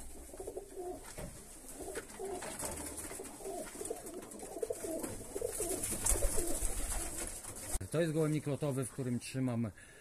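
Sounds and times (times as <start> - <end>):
pigeons cooing: 0.0 - 7.3.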